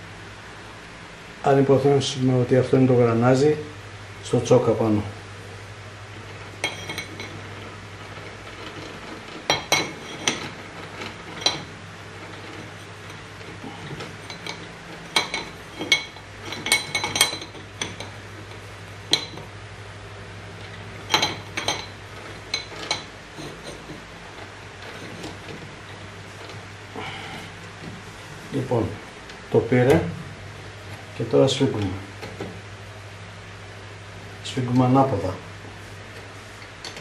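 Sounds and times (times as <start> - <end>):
low steady hum: 0.0 - 37.0.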